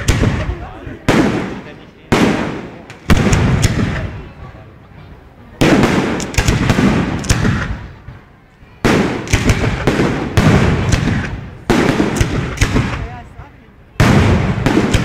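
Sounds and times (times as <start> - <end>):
firework crackling: 5.5 - 15.0.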